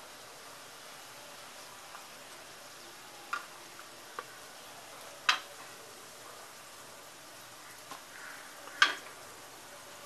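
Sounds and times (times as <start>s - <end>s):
frying oil hissing: 0.0s - 10.0s
metal utensils clicking on griddle: 5.2s - 5.7s, 8.7s - 9.2s.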